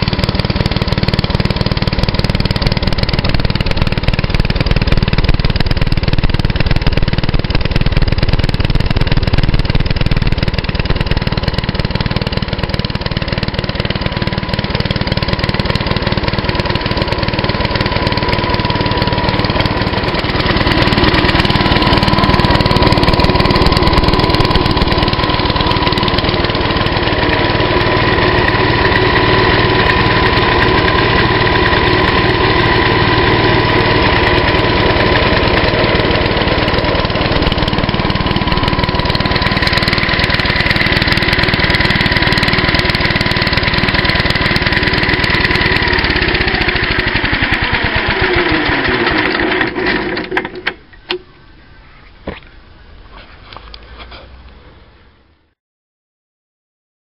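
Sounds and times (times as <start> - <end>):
single-cylinder engine running: 0.0 - 51.3.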